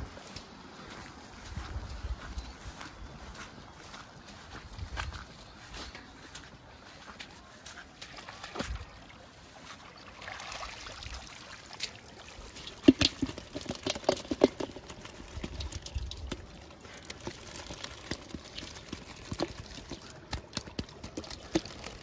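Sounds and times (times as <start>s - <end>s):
water trickling and dripping: 8.0s - 22.0s
fish and water tipping into metal bowl: 10.2s - 22.0s.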